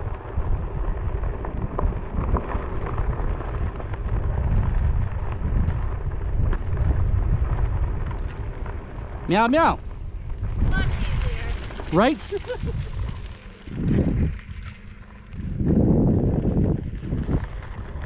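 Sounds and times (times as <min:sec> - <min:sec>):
electric board rumbling on dirt road: 0:00.0 - 0:18.0
wind on microphone: 0:00.0 - 0:18.0.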